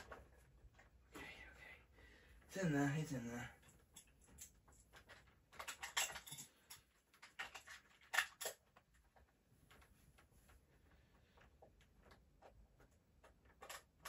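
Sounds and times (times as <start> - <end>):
batteries and plastic clicking: 3.6 - 10.3, 11.3 - 14.0.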